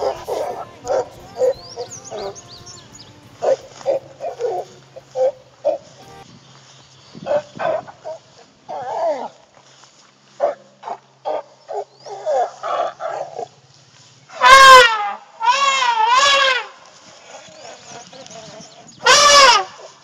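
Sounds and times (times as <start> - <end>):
elephant trumpeting: 0.0 - 6.2, 14.3 - 17.8, 19.0 - 19.7.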